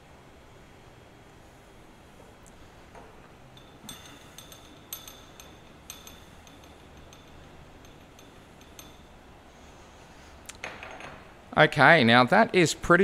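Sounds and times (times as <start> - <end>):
light metallic clicks and clinks: 2.5 - 9.4.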